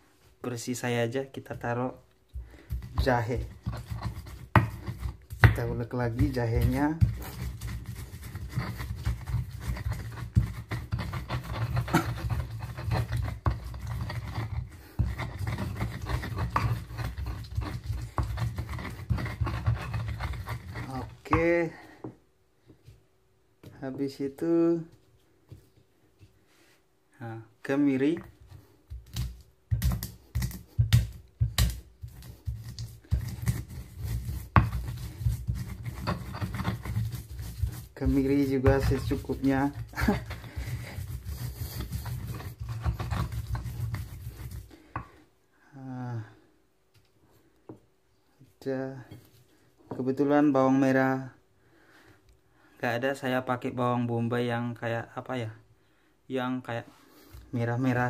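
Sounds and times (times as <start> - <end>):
pestle grinding in mortar: 2.4 - 21.6, 28.2 - 45.2
pestle knocking: 2.7 - 21.5, 28.9 - 44.6.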